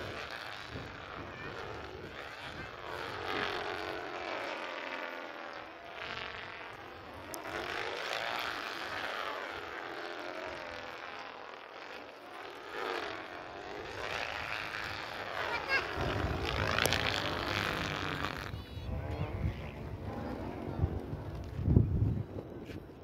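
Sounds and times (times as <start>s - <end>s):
stunt kites buzzing in wind: 0.0s - 23.0s
low rumble: 15.2s - 23.0s.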